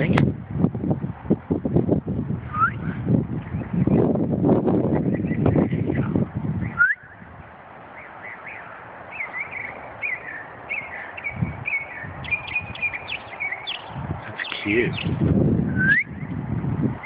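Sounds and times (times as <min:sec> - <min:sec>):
wind buffeting microphone: 0:00.0 - 0:17.0
songbird chirping: 0:07.9 - 0:15.2.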